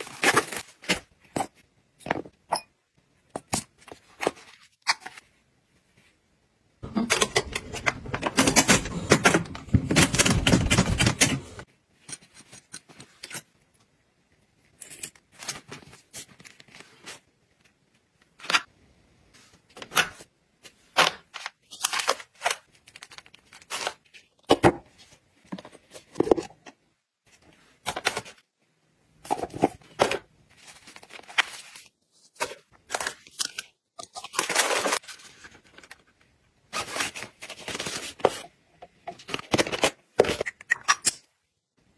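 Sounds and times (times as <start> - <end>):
packages rustling and clicking: 6.9 - 13.4.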